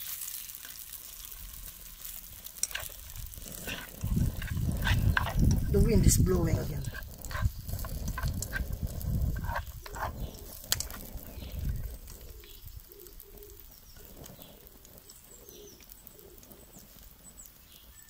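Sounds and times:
spatula scraping frying pan: 0.0s - 12.2s
wind rumbling on microphone: 1.4s - 17.5s
faint bird calls: 9.4s - 18.0s.

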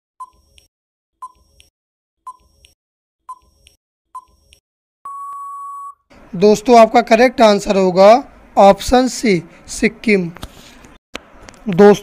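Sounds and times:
long steady beep: 5.1s - 6.0s
short beeps: 5.1s - 6.0s.

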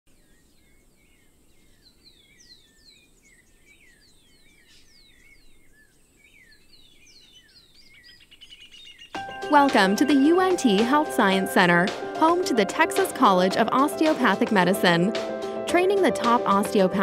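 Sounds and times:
birds chirping: 0.1s - 17.0s.

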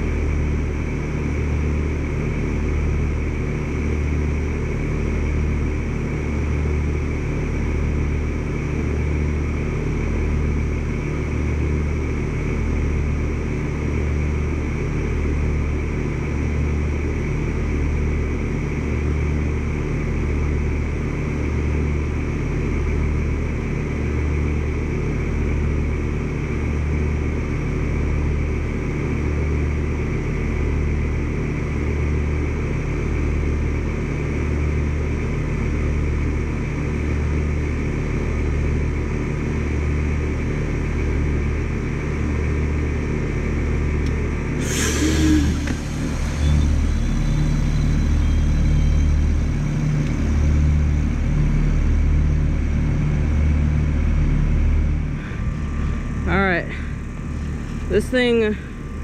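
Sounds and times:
heat pump humming: 39.9s - 59.0s
fan whoosh: 44.6s - 47.8s.

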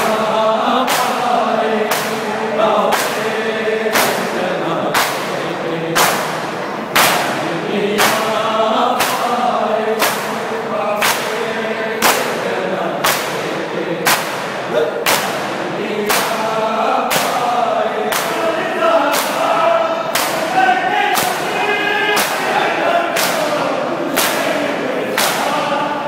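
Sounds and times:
crowd of men chanting: 0.0s - 26.0s
hands slapping chests: 0.8s - 1.3s, 1.9s - 2.3s, 2.9s - 3.3s, 3.9s - 4.3s, 4.9s - 5.4s, 6.0s - 9.4s, 10.0s - 10.4s, 11.0s - 11.4s, 12.0s - 12.4s, 13.0s - 16.5s, 17.1s - 17.4s, 18.1s - 18.4s, 19.1s - 19.5s, 20.1s - 20.5s, 21.2s - 21.5s, 22.2s - 25.6s.

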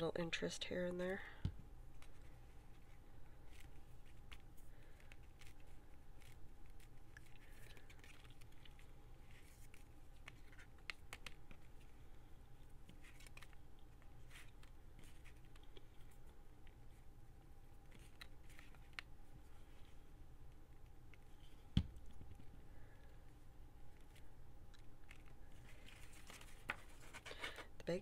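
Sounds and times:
low steady hum: 0.0s - 28.0s
paper and fabric rustling: 25.0s - 27.7s.

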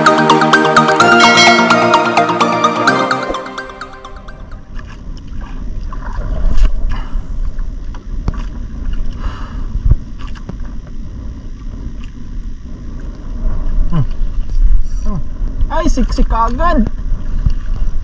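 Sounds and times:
water lapping against boat: 4.7s - 15.0s.

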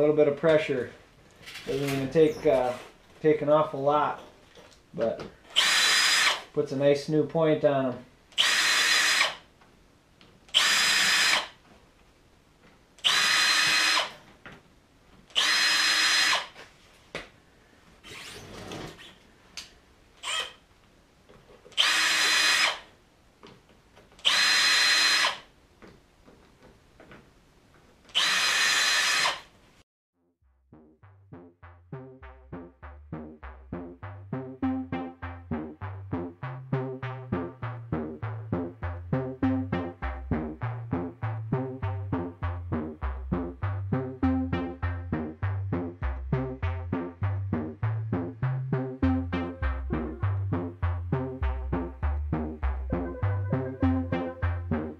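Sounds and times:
power drill grinding metal: 5.5s - 6.5s, 8.4s - 9.4s, 10.5s - 11.6s, 13.0s - 14.2s, 15.4s - 16.6s, 18.0s - 19.2s, 20.2s - 20.6s, 21.8s - 22.9s, 24.2s - 25.5s, 28.1s - 29.5s
rhythmic electronic music: 30.7s - 54.9s.

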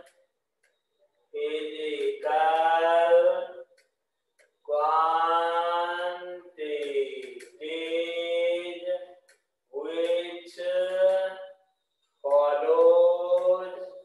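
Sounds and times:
person chanting long notes: 4.7s - 9.2s, 12.2s - 14.0s.

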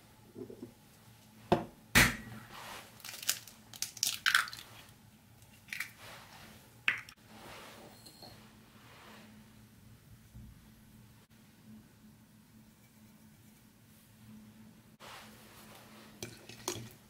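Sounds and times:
eggshell crackling: 2.9s - 6.0s.

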